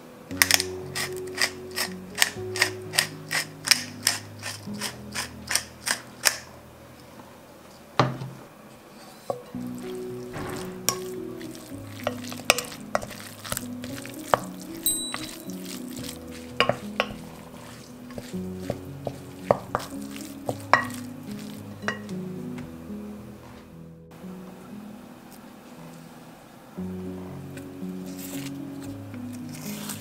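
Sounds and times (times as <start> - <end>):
soft background music: 0.0 - 30.0
spoon stirring minced meat: 10.9 - 22.2
spoon knocking against glass: 14.9 - 15.6.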